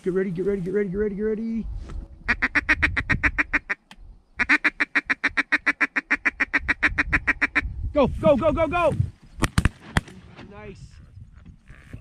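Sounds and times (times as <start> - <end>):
duck call chuckling: 4.4 - 7.6.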